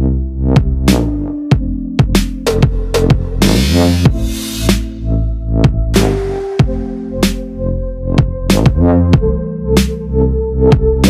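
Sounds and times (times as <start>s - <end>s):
electronic music with deep bass: 0.0s - 11.0s
rushing noise swell: 3.5s - 5.2s, 6.0s - 7.6s.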